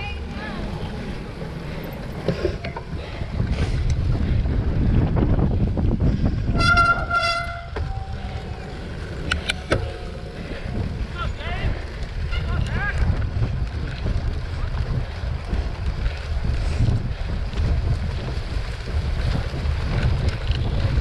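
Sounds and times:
bike rolling over bumpy grass: 0:00.0 - 0:21.0
wind buffeting microphone: 0:00.0 - 0:21.0
short horn toots: 0:06.5 - 0:08.1.

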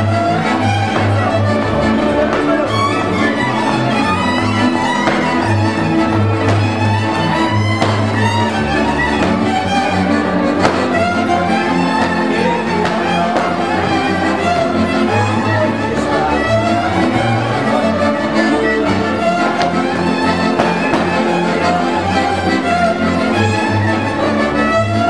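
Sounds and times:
double bass line: 0:00.0 - 0:25.0
fiddles playing dance melody: 0:00.0 - 0:25.0
kontra chords: 0:00.0 - 0:25.0.

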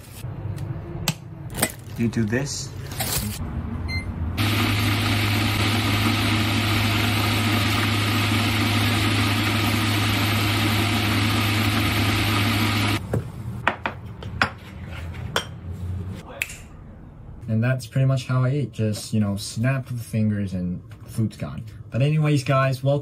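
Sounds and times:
appliance humming: 0:04.4 - 0:13.0.

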